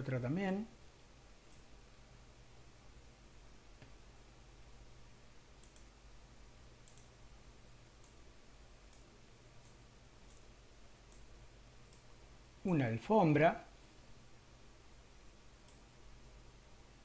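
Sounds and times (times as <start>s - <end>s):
low steady hum: 0.0s - 17.0s
computer mouse clicks: 1.4s - 1.7s, 5.6s - 6.0s, 6.8s - 7.2s, 8.0s - 8.2s, 8.8s - 10.5s, 11.1s - 12.1s, 15.6s - 15.9s.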